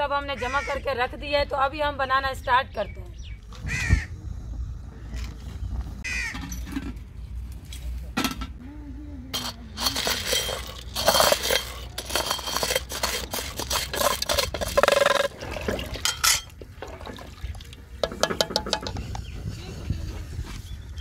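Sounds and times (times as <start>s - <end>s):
metal utensils clinking on pot: 9.4s - 17.0s, 18.0s - 19.1s
ladle stirring water: 9.4s - 19.2s.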